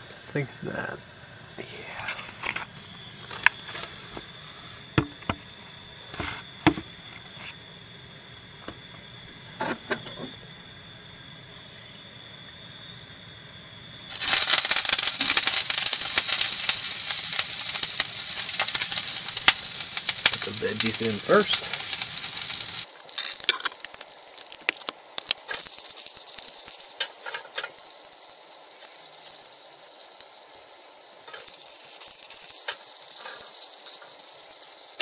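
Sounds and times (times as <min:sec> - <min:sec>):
vegetables sizzling in hot oil: 0:12.0 - 0:35.0.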